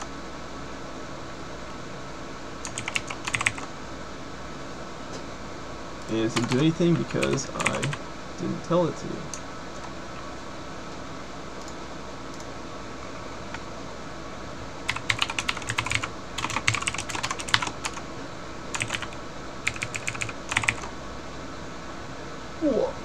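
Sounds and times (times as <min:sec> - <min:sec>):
typing on computer keyboard: 0:02.6 - 0:03.7, 0:06.4 - 0:08.0, 0:14.9 - 0:18.0, 0:18.7 - 0:20.9.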